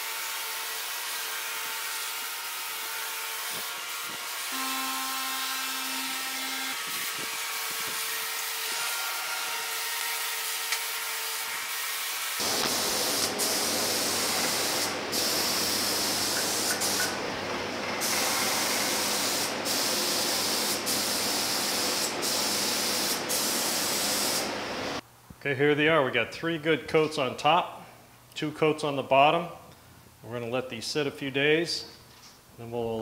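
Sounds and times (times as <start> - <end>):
spray gun hissing: 12.4 - 17.2, 18.0 - 24.6.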